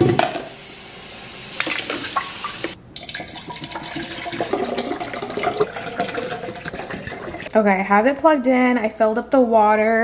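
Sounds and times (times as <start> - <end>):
faucet running water: 0.4 - 7.5
water splashing into sink: 1.5 - 7.5.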